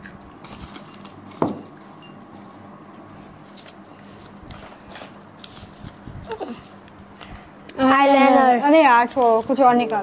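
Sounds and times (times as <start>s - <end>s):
paper rustling and crinkling: 0.1s - 6.8s, 8.8s - 10.0s.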